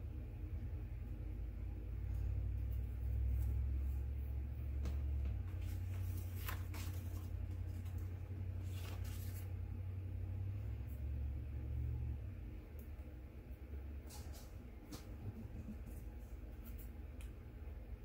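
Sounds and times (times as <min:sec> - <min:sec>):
steady low rumble: 0:00.0 - 0:18.0
paper rustling: 0:05.2 - 0:09.6.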